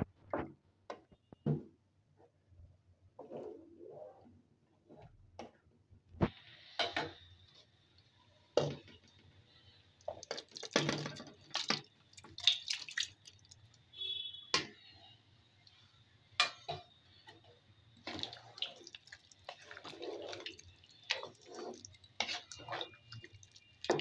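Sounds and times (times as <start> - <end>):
liquid splashing into pot: 10.1 - 13.8, 18.0 - 24.0.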